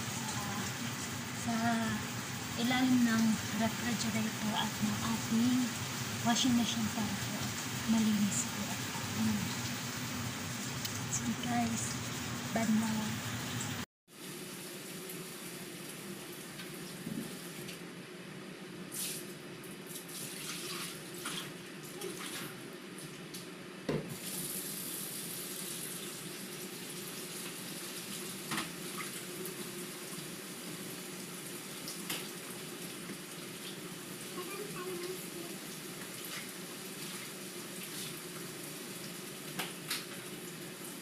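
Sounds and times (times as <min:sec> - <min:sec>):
water running: 0:00.0 - 0:17.8, 0:24.1 - 0:41.0.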